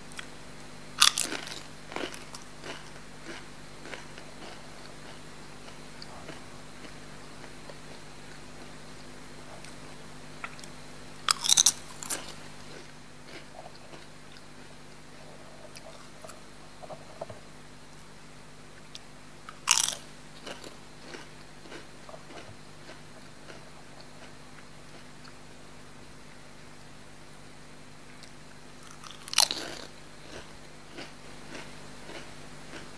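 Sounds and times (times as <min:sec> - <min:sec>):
loud crunches of chip being bitten: 0:01.0 - 0:04.6, 0:11.3 - 0:12.4, 0:19.5 - 0:22.4, 0:28.8 - 0:32.9
chewing crunches: 0:01.0 - 0:08.8, 0:11.3 - 0:17.3, 0:19.5 - 0:25.4, 0:28.2 - 0:32.9.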